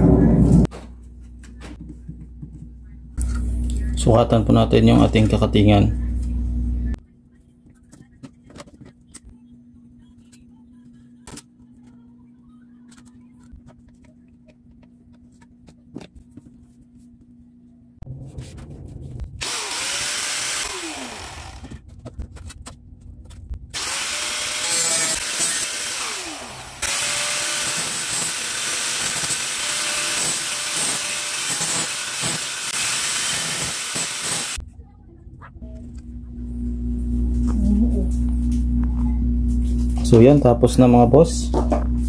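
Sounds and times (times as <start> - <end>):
angle grinder cutting metal: 19.4 - 21.8, 23.8 - 34.6.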